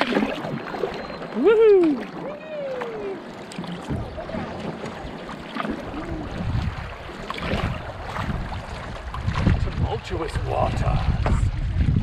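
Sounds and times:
water slapping against hull: 0:00.0 - 0:12.0
wind gusting on microphone: 0:05.9 - 0:12.0.

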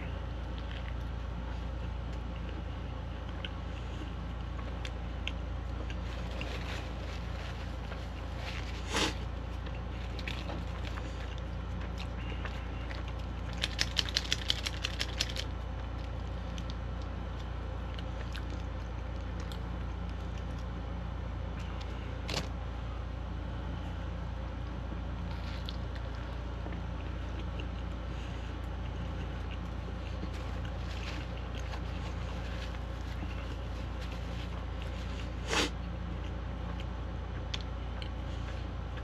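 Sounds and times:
steady low hum: 0:00.0 - 0:39.0
plastic packet crinkling: 0:13.4 - 0:15.5.

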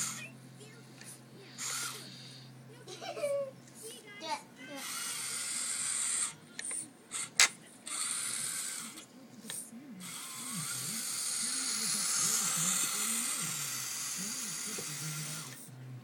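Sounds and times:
toy truck motor whining: 0:00.0 - 0:00.3, 0:01.6 - 0:02.2, 0:04.7 - 0:06.4, 0:07.9 - 0:09.0, 0:10.0 - 0:15.6.

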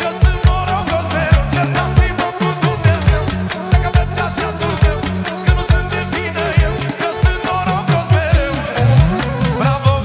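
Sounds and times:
wavering lead melody: 0:08.4 - 0:10.0.

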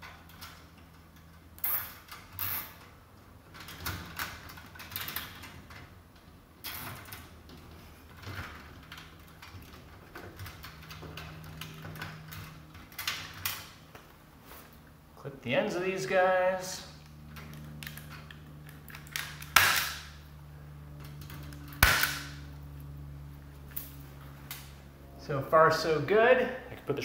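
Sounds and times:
cable ties ratcheting zips: 0:00.0 - 0:05.8, 0:17.0 - 0:20.2
wires rustling: 0:00.0 - 0:24.8.

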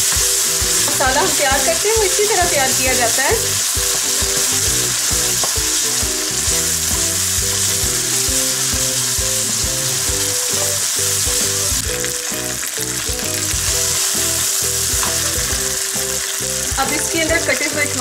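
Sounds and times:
wooden spoon stirring in pan: 0:00.0 - 0:11.6
onions sizzling in oil: 0:00.0 - 0:18.0.

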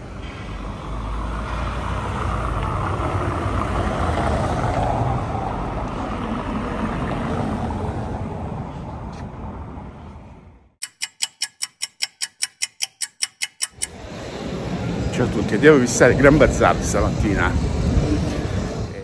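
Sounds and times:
motor vehicle passing: 0:00.5 - 0:10.0.

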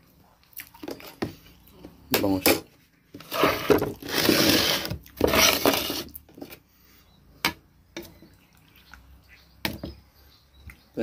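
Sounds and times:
plastic bowl scraping on wood: 0:02.5 - 0:06.6.

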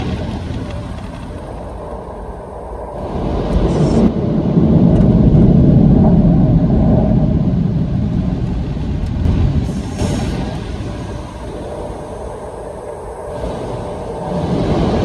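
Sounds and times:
water spray: 0:09.5 - 0:12.3.

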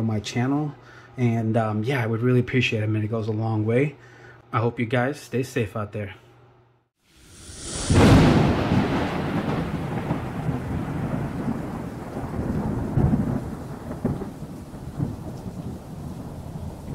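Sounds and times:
rain-like hiss: 0:07.1 - 0:16.9
rolling thunder rumble: 0:07.3 - 0:16.9.

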